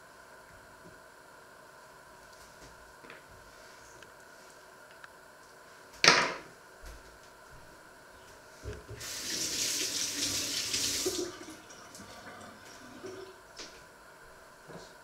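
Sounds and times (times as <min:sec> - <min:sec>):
kitchen tap running: 0:09.0 - 0:13.4.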